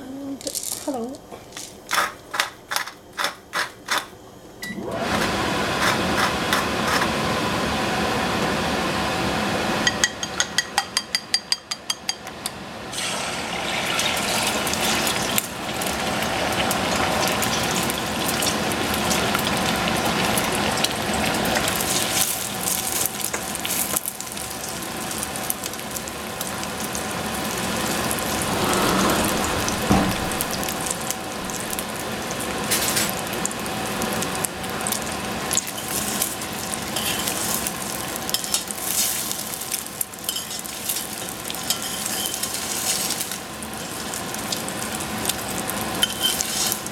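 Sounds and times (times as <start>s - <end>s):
egg sizzling in hot oil: 12.9s - 46.9s.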